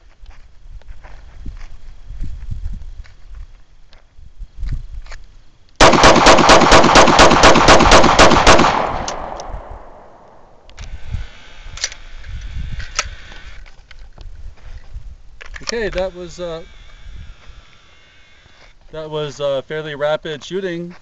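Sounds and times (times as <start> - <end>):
pistol shots ringing: 5.8 - 10.6.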